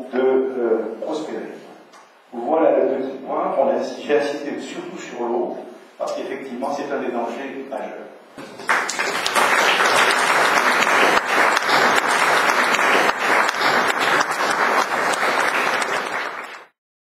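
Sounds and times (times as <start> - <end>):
audience applauding: 8.4 - 16.8.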